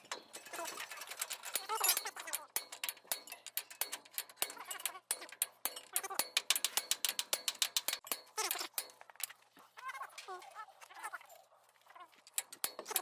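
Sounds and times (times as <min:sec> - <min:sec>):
steel bar knocking on metal: 0:00.1 - 0:09.2.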